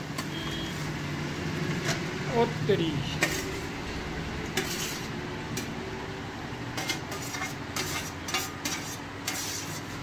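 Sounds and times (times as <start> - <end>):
metal spoon scraping steel plate: 3.2 - 3.7, 4.5 - 5.7, 6.7 - 10.0.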